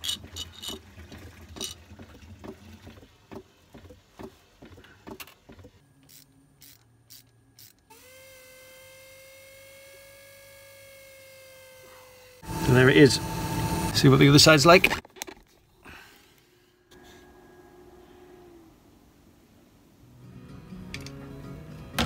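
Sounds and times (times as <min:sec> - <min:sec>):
small motor whine: 0:07.6 - 0:14.2.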